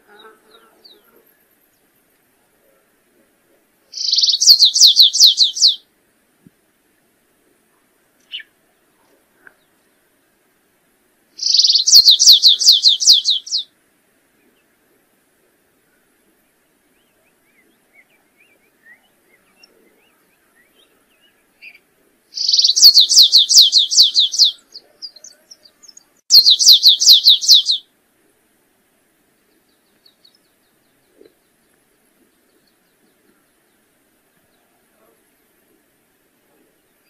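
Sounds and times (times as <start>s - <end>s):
faint bird chirps: 0.0s - 5.8s, 7.7s - 9.9s, 11.4s - 13.7s, 15.9s - 27.9s, 29.3s - 35.8s
finch singing: 3.9s - 5.8s, 8.2s - 8.5s, 11.4s - 13.6s, 22.4s - 27.8s.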